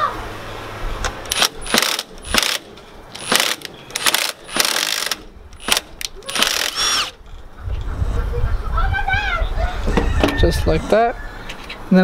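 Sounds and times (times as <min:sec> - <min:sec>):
cordless power tool spinning: 0:01.3 - 0:02.6, 0:03.2 - 0:07.2.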